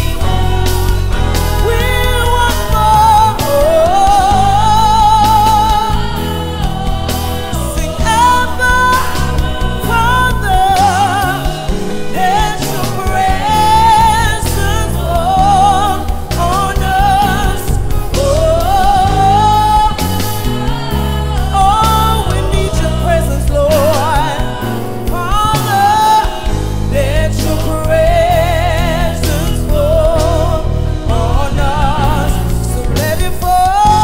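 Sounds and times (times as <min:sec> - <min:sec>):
instrumental accompaniment with bass: 0:00.0 - 0:34.0
woman singing with vibrato: 0:00.0 - 0:34.0.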